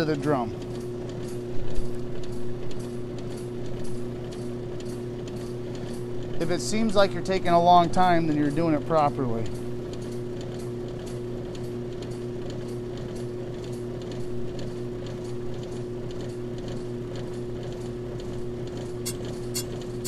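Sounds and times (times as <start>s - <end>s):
brake lathe running: 0.0s - 20.0s
cutter bit ticking scrape: 19.0s - 20.0s.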